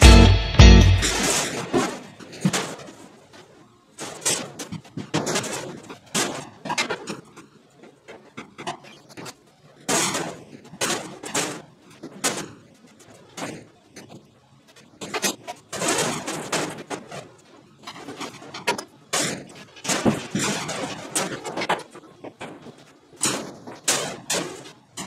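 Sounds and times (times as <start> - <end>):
loud metallic bang: 0.0 - 2.1.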